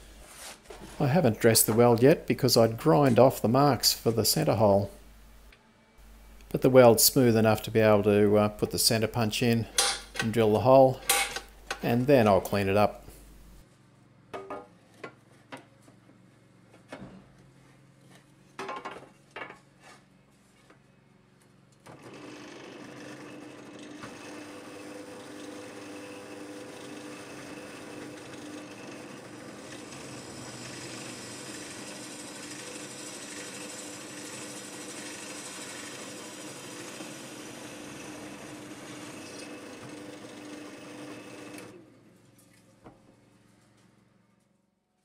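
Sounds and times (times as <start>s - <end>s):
drill press humming: 21.9s - 41.8s.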